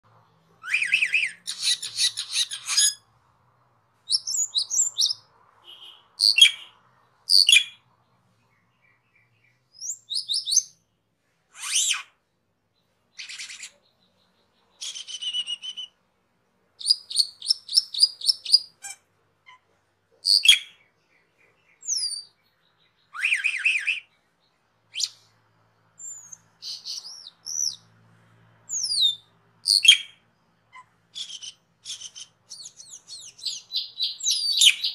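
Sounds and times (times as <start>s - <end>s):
high falling bird whistles: 23.1s - 24.1s.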